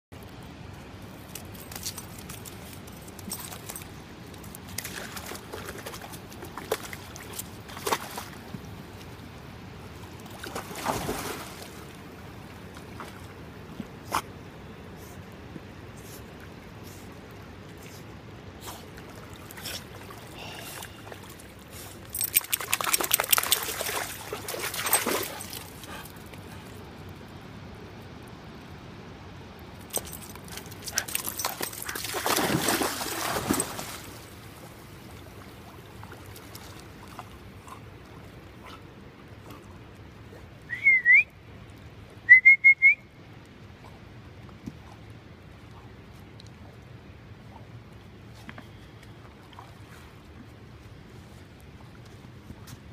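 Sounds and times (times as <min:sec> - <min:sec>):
dog splashing in water: 0:04.7 - 0:08.4, 0:10.3 - 0:12.0, 0:22.1 - 0:25.9, 0:30.0 - 0:37.3
short whistles: 0:40.6 - 0:41.4, 0:42.3 - 0:43.1.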